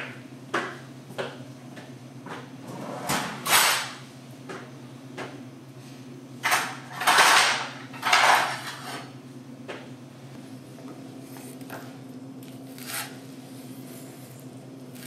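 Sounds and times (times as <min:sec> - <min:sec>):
objects scraping and clattering: 0:06.4 - 0:09.1.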